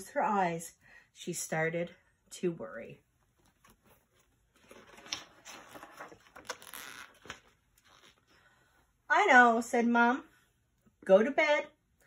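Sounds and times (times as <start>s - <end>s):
book pages rustling: 3.2s - 8.4s.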